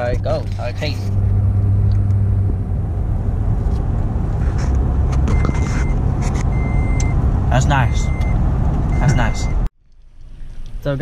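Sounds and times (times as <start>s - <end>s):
car engine low rumble: 0.0s - 11.0s
electronic beep: 5.3s - 7.2s, 7.8s - 9.7s.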